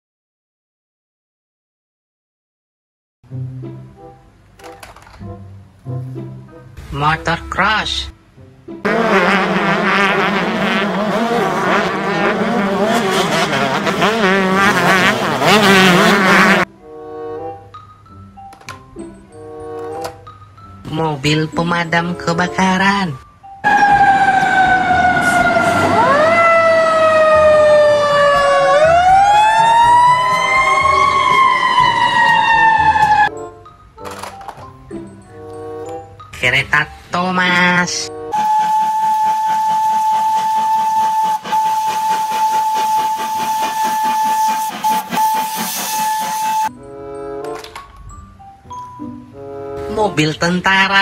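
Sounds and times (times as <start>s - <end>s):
motocross bike engines revving: 8.9s - 16.7s
fire truck sirens wailing: 23.6s - 33.4s, 38.0s - 46.8s.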